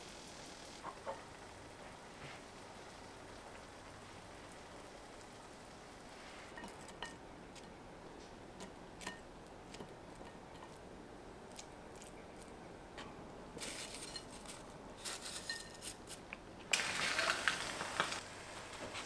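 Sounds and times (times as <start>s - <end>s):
faint steady hiss: 0.0s - 19.0s
utensils clinking against dishes: 13.6s - 16.0s.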